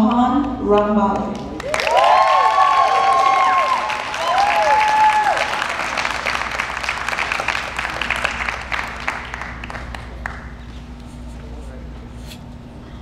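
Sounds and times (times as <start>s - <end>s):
audience applauding: 1.6s - 10.6s.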